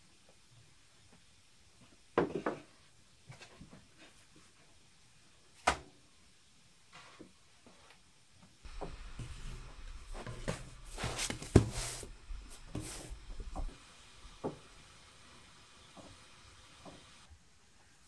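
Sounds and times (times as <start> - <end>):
wooden knocks and scrapes: 8.7 - 14.8
hiss on hot griddle: 8.7 - 17.3.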